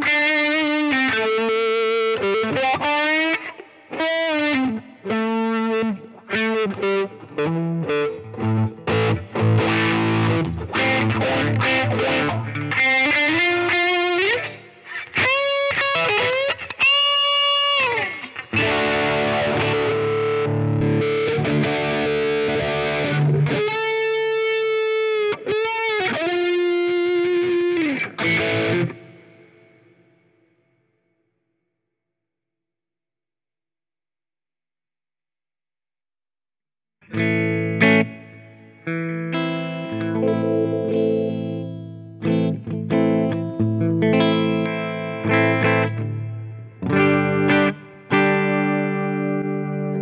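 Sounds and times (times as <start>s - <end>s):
electric guitar lead with echo: 0.0s - 30.8s, 37.0s - 50.0s.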